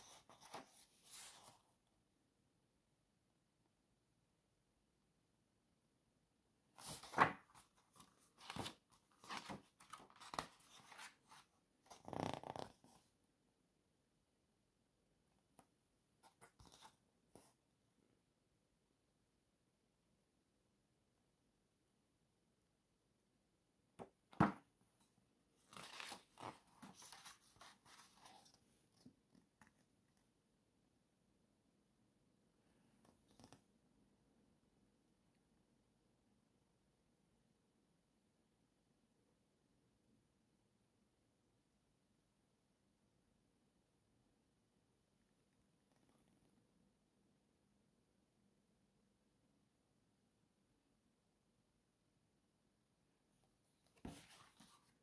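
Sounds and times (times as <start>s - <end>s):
paper pages rustling and turning: 0.0s - 1.7s, 6.8s - 13.0s, 16.2s - 17.0s, 25.6s - 29.9s, 53.8s - 55.0s.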